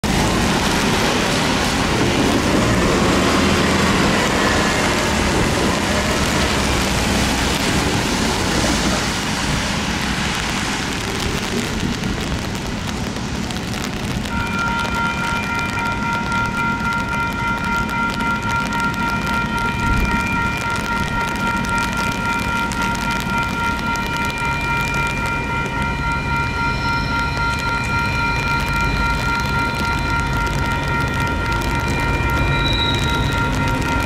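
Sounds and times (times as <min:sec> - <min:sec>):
car tyres hissing on wet road: 0:00.0 - 0:34.0
steady rain: 0:00.0 - 0:34.0
electronic crossing bell ringing: 0:14.2 - 0:34.0.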